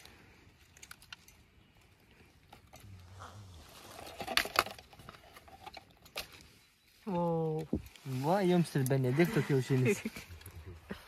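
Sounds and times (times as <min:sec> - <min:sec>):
light clicks and clinks: 0:00.0 - 0:03.1.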